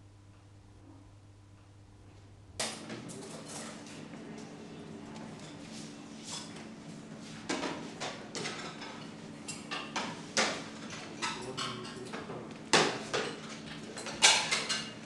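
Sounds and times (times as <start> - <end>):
low steady hum: 0.0 - 6.2
trays plates and cutlery clattering: 8.4 - 15.0.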